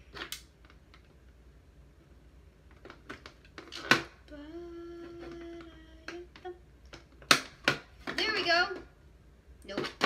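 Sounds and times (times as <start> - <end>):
boy humming: 4.2 - 6.6.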